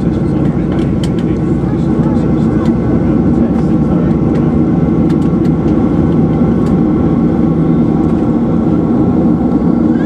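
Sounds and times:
jet engines humming: 0:00.0 - 0:10.0.

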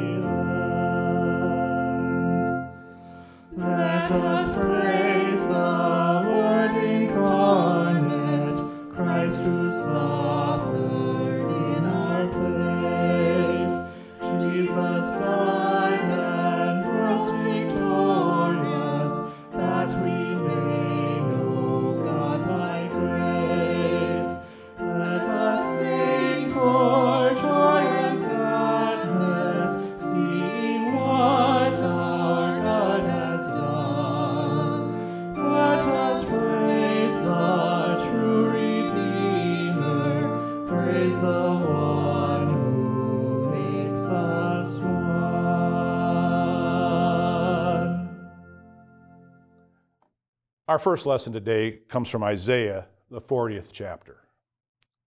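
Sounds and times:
organ chord: 0:00.0 - 0:49.6
singer breathing: 0:02.8 - 0:03.5, 0:13.9 - 0:14.2, 0:24.4 - 0:24.8, 0:34.9 - 0:35.3
woman singing a hymn: 0:03.5 - 0:48.3.

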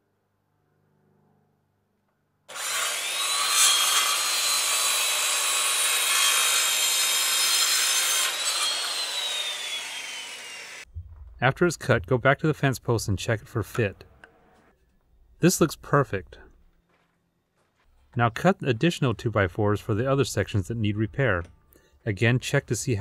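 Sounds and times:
circular saw cutting wood: 0:02.5 - 0:10.9.

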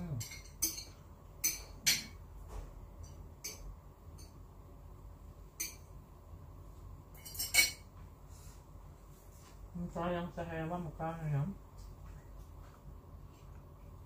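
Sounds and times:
faint low hum: 0:00.0 - 0:14.0
chopsticks clinking against bowls: 0:00.1 - 0:02.2, 0:03.0 - 0:04.4, 0:05.6 - 0:05.9, 0:07.2 - 0:07.9.

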